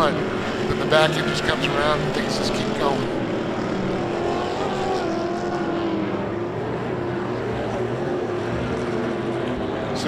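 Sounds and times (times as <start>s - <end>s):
truck engines revving: 0.0s - 10.0s.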